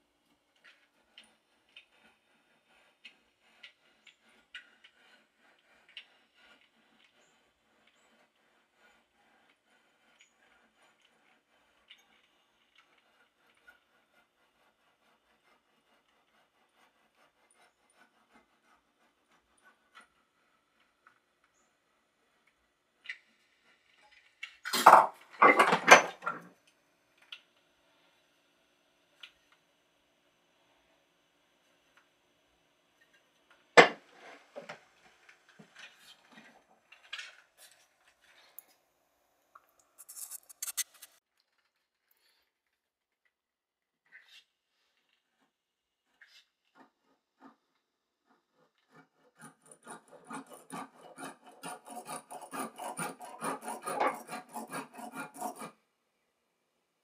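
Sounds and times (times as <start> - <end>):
handsaw cutting wood: 2.0 - 20.8, 48.3 - 55.8
wooden knocks: 33.8 - 34.0
wood rubbing: 48.9 - 55.8.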